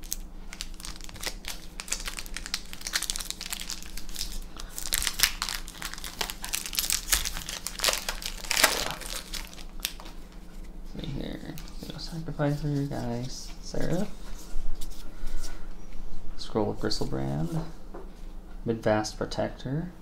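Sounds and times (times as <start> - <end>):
foil wrapper crinkling: 0.0 - 10.2.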